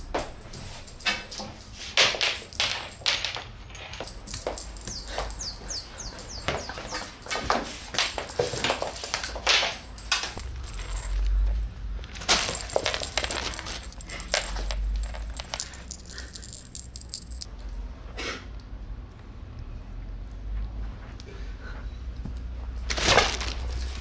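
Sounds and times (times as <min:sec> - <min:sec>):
small clicks and clinks: 0:00.1 - 0:17.6.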